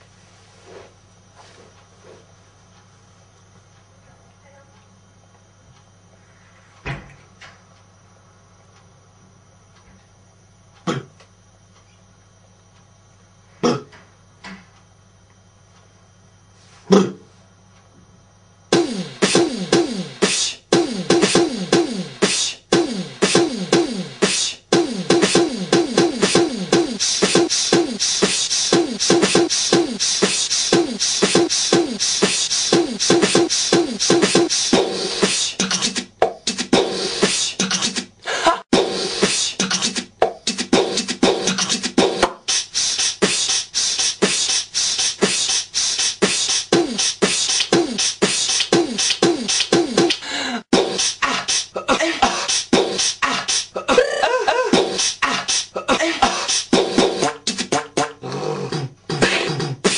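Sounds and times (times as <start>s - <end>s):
person beatboxing: 18.7s - 59.9s.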